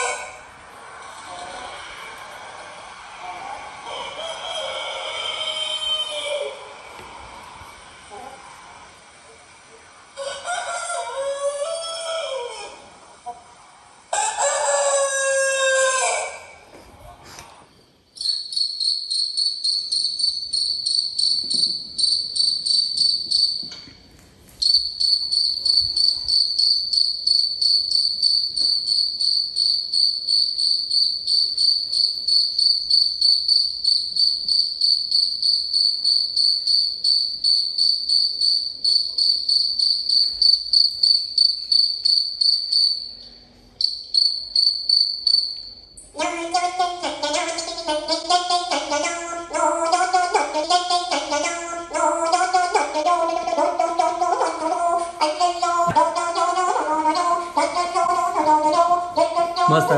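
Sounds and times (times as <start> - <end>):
cricket chirping through small speaker: 3.6 - 6.9, 17.7 - 59.9.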